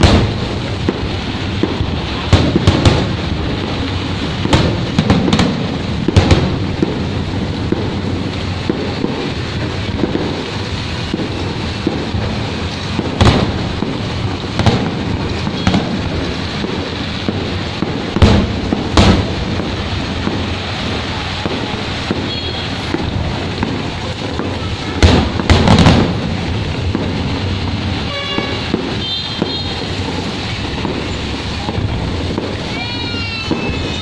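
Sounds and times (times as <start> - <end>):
fireworks bangs: 0.0 - 34.0
rain hiss: 0.0 - 34.0
small firework pops: 0.0 - 34.0.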